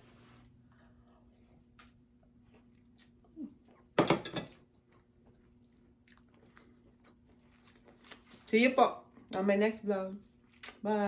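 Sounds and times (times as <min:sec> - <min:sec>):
person chewing food: 0:04.6 - 0:08.3.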